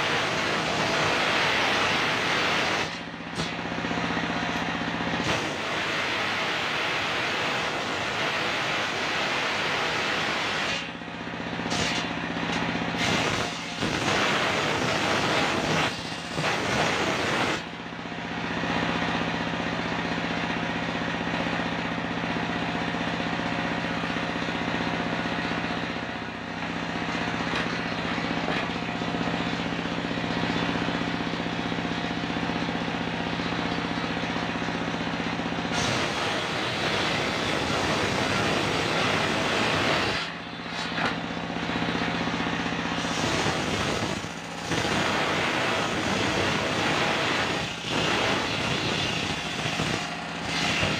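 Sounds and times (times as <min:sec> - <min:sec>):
engine running with low hum: 0:00.0 - 0:50.9
circular saw cutting wood: 0:13.0 - 0:17.7, 0:35.6 - 0:41.2, 0:42.5 - 0:50.9.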